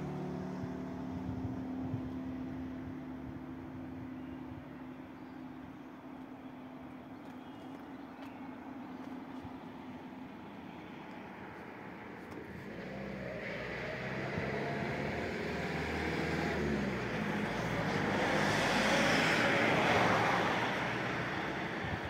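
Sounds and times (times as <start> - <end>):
motor vehicle passing: 10.8 - 22.0.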